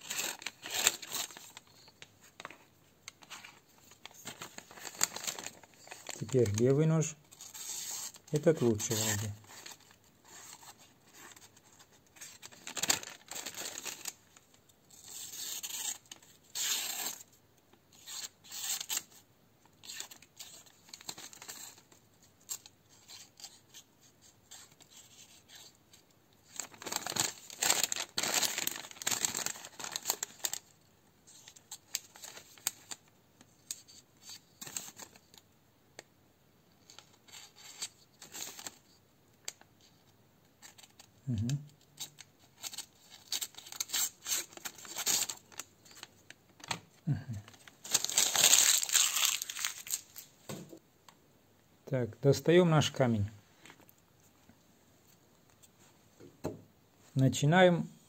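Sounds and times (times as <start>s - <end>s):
knife tearing paper: 0.0s - 1.6s, 7.3s - 10.7s, 14.9s - 17.2s, 17.9s - 19.1s, 47.9s - 50.2s.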